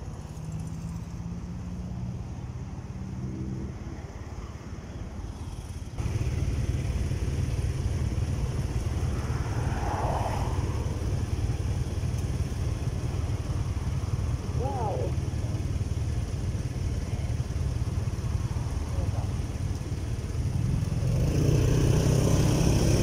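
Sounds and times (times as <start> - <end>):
motorcycle engine rumbling: 5.2 - 23.0.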